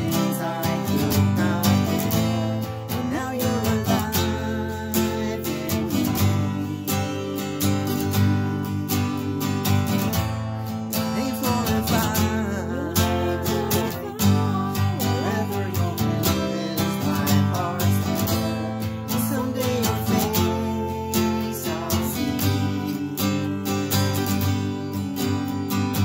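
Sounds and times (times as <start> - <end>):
man singing a hymn: 0.0 - 10.0, 10.9 - 26.0
acoustic guitar strumming: 0.0 - 26.0.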